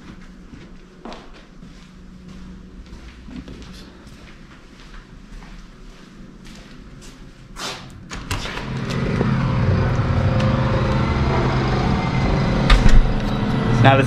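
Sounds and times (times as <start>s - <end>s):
construction machine engine running: 8.0s - 14.0s.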